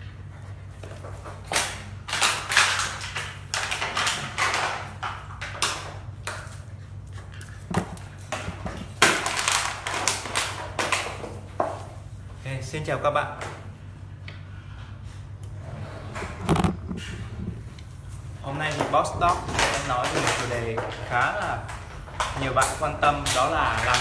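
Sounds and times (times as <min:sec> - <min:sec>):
steady low hum: 0:04.7 - 0:24.0
plastic bottle crinkling: 0:07.6 - 0:11.4.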